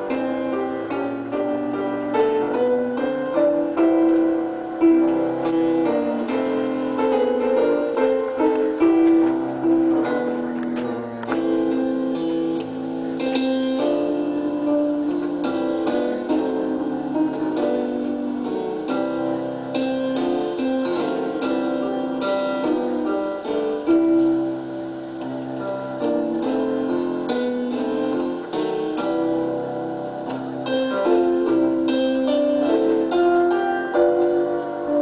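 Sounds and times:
electronic keyboard playing hymn: 0.0 - 35.0.

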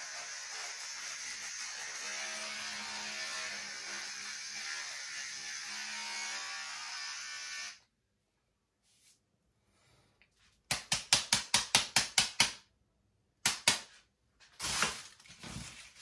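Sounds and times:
electric hair clippers buzzing: 3.2 - 7.8.

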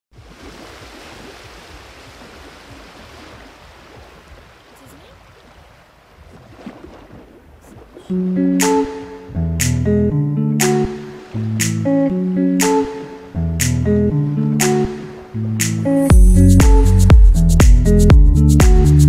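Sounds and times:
music with guitar: 8.1 - 19.0.

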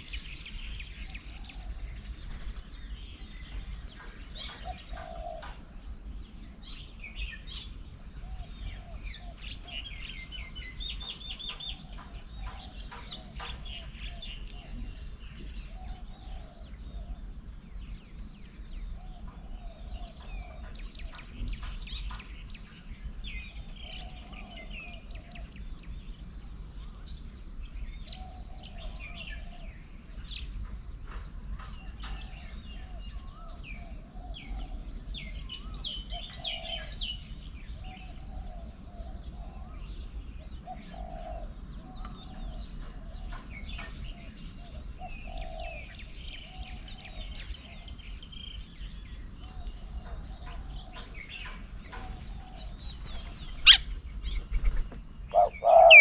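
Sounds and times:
birds chirping and trilling: 0.0 - 30.6, 31.5 - 56.0
lower bird call: 49.4 - 56.0.

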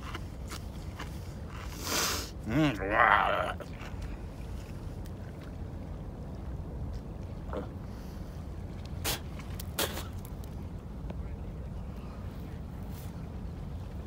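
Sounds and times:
sharp spit: 9.0 - 9.2.

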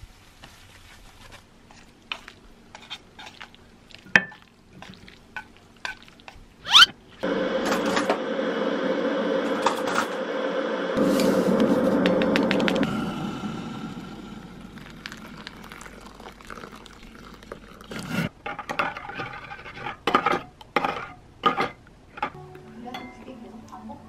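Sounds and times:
loud hum with rushing noise: 7.2 - 16.2.

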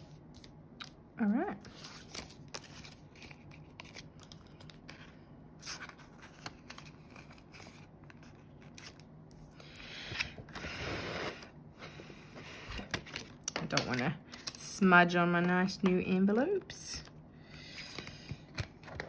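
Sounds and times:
banknotes crinkling and flicking: 1.6 - 9.4, 12.8 - 14.8.

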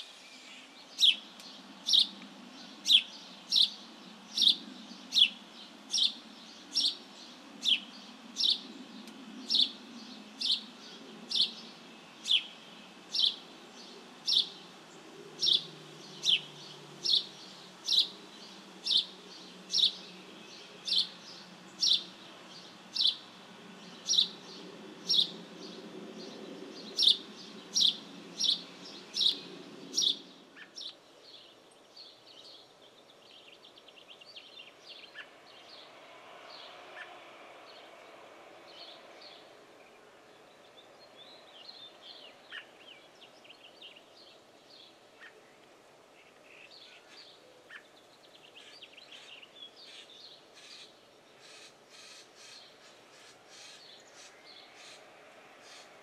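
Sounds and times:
sparrow chirping: 0.0 - 8.7, 9.5 - 14.6, 15.4 - 25.4, 26.3 - 35.3, 40.7 - 45.4.

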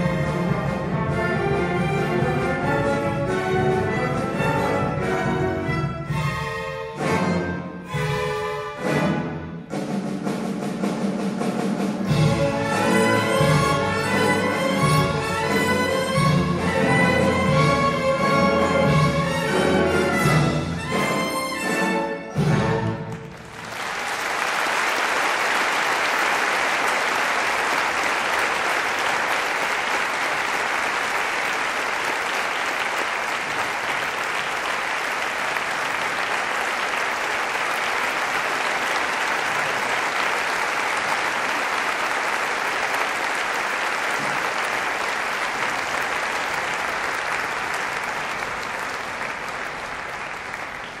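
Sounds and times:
audience applauding: 23.0 - 51.0.

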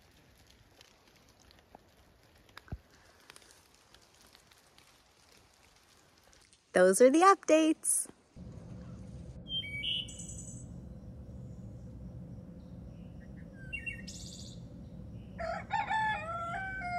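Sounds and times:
small birds chirping: 8.8 - 15.6
rooster crowing: 13.8 - 16.9.

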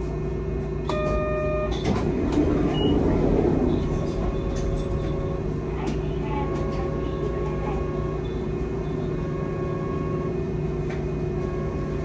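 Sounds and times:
tram motor hum and rail rumble: 0.0 - 12.0
short beep: 0.9 - 1.9.

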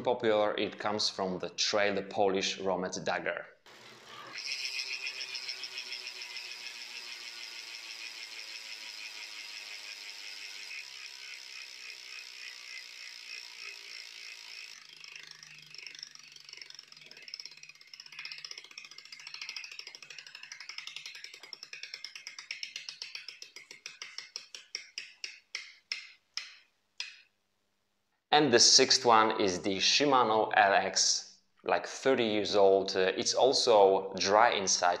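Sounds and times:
bicycle freehub clicking: 3.7 - 27.2.

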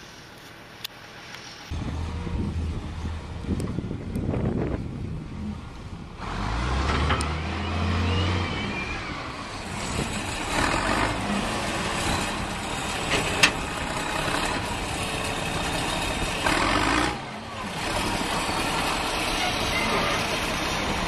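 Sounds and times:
truck engine running: 8.2 - 21.0
tractor engine running: 9.1 - 21.0.

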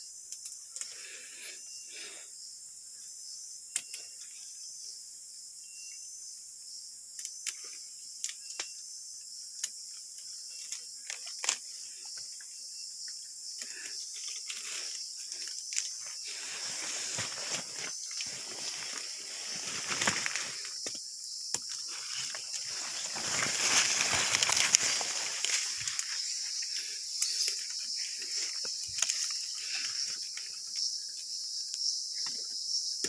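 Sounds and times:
high insect chorus: 0.0 - 33.0
leaves and vines rustling: 13.5 - 31.1
vine shoots snapping: 21.5 - 26.2.

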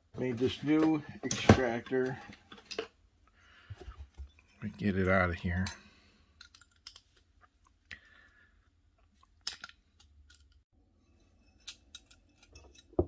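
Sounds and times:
small metal clicks and scrapes: 6.4 - 7.7, 9.0 - 13.0.

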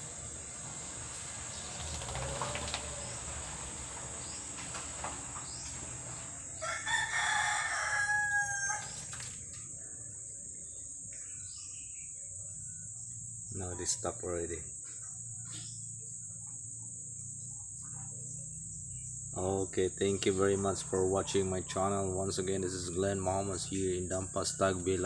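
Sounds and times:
rooster crowing: 5.4 - 9.4, 20.4 - 25.0.

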